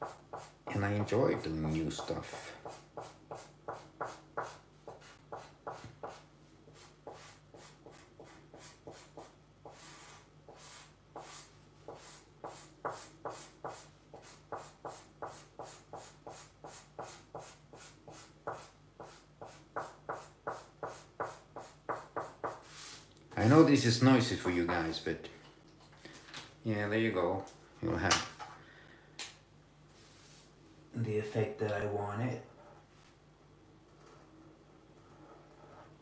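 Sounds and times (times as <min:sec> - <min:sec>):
marker scratching on paper: 0:00.0 - 0:00.7, 0:01.7 - 0:23.0
faint steady hum: 0:00.0 - 0:36.0.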